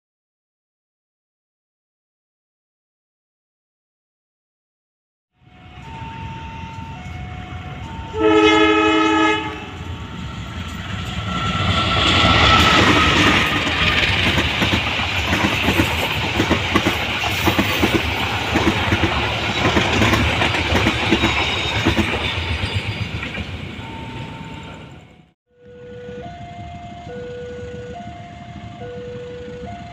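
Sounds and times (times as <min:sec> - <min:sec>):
locomotive horn blast: 0:05.4 - 0:10.2
train rumbling past: 0:05.4 - 0:29.9
wheels clickety-clack on rails: 0:05.8 - 0:25.2.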